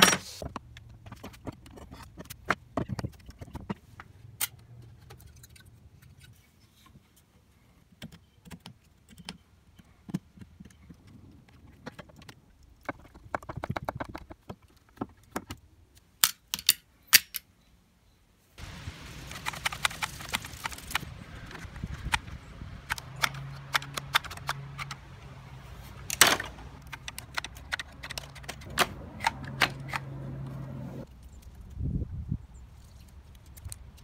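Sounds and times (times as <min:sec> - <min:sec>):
loud sharp wood crack: 0:18.6 - 0:25.2, 0:26.0 - 0:30.2.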